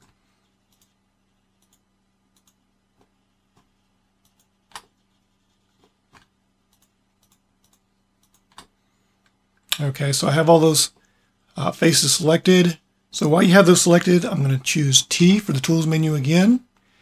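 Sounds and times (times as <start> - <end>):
computer mouse clicks: 0.0 - 5.0, 5.8 - 9.4.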